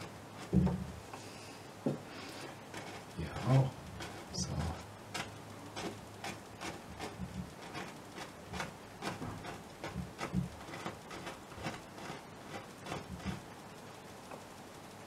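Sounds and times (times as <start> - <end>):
paintbrush tapping on canvas: 0.4 - 0.9.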